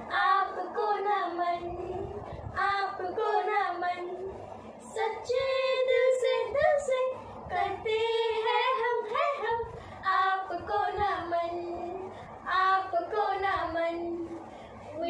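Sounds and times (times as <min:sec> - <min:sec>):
girls singing: 0:00.0 - 0:15.0.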